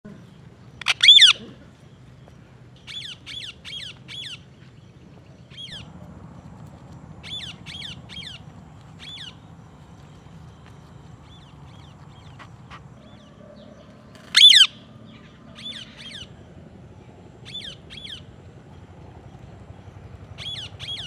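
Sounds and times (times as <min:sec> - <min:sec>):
parakeet screeching: 0:00.8 - 0:01.4, 0:14.2 - 0:14.8
parakeet squawks: 0:00.8 - 0:01.4, 0:14.2 - 0:14.8.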